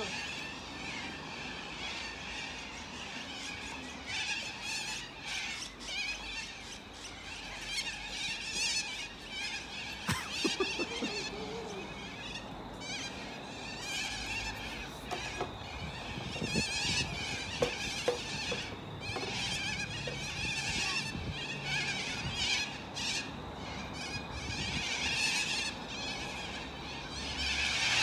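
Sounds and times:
cockatoos screeching: 0.0 - 28.0.

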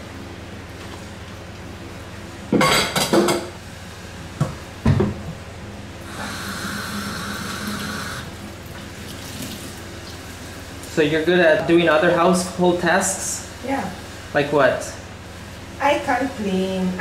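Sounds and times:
dishes clattering in sink: 2.6 - 3.6
tap running: 4.4 - 5.4, 6.0 - 10.2.

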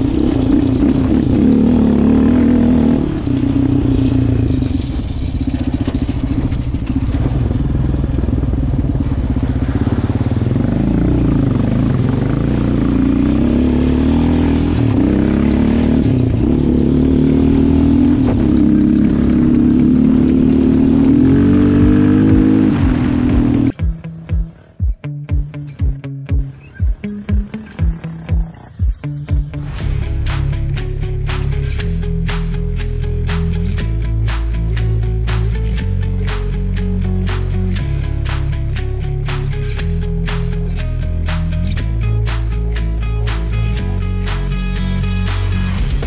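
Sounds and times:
atv engine revving: 0.0 - 23.8
water splashing and rushing: 8.9 - 14.2, 18.2 - 23.8.

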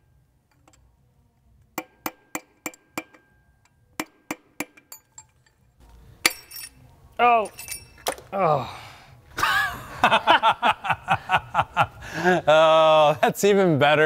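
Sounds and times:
hammer tapping on metal: 1.8 - 5.3.

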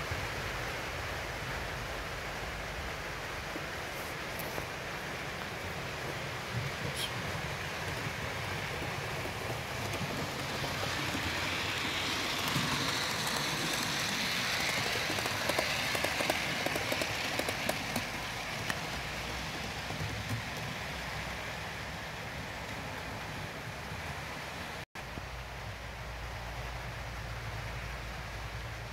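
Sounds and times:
wheels clicking over rail joints: 3.4 - 24.8
model train wheels hissing: 3.8 - 24.4.

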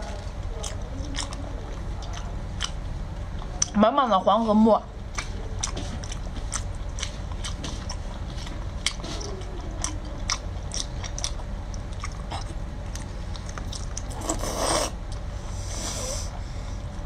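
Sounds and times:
person chewing: 0.6 - 2.8, 5.2 - 15.2
slurping: 13.7 - 15.0.

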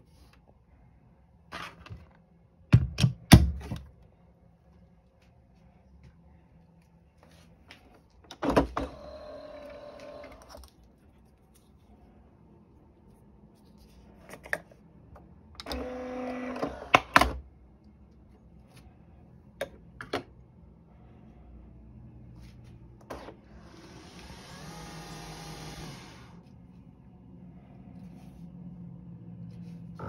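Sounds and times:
coffee machine mechanical whirr: 8.3 - 10.7, 15.6 - 17.4, 23.0 - 26.4.

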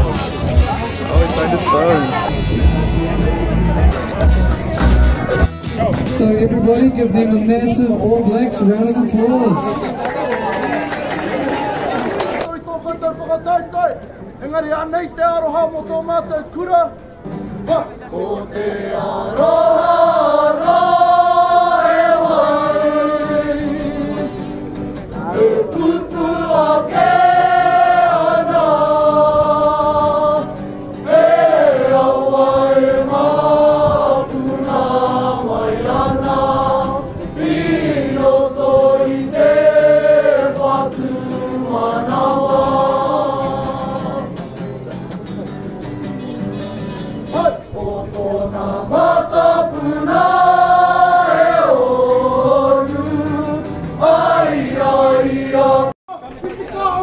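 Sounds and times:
acoustic guitar: 0.0 - 6.6, 17.0 - 57.0
group singing in harmony: 18.1 - 44.6, 47.4 - 56.0.

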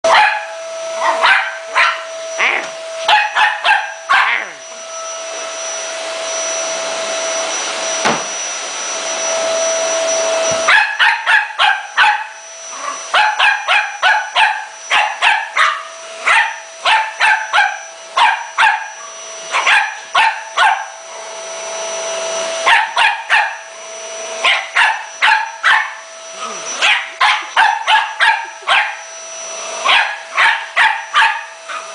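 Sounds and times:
small dog barking: 0.0 - 4.6, 10.6 - 12.4, 13.1 - 21.0, 22.6 - 23.6, 24.4 - 29.0, 29.8 - 31.9
vacuum cleaner whine: 0.0 - 31.9.

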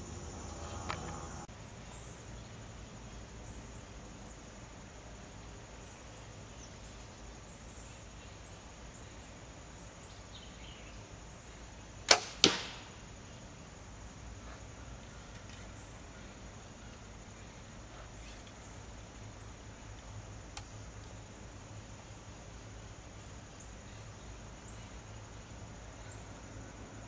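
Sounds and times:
arrow striking target: 12.1 - 13.0
bow string snap: 12.1 - 13.0, 20.5 - 21.2.

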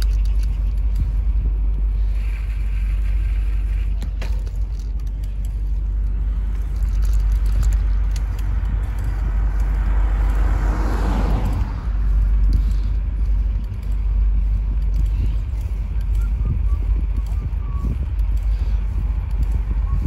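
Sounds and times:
steady low rumble: 0.0 - 20.0
car passing by: 8.4 - 13.7.

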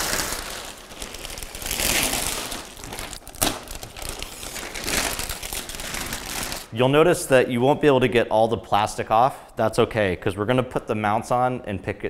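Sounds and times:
plastic wrapping crinkling: 0.0 - 6.7.

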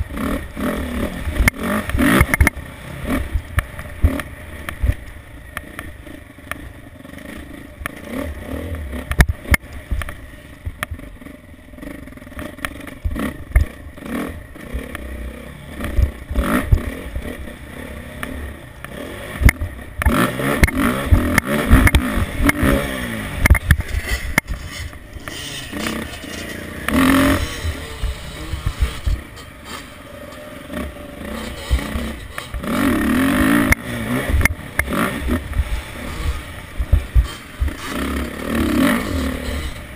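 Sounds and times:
motorbike engine revving: 0.0 - 39.9
bike clattering over bumps: 18.2 - 39.9.

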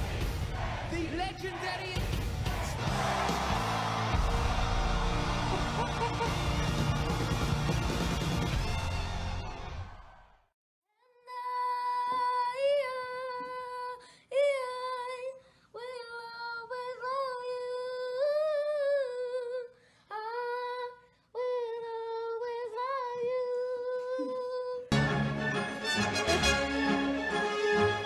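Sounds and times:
music: 0.0 - 10.5, 24.9 - 28.0.

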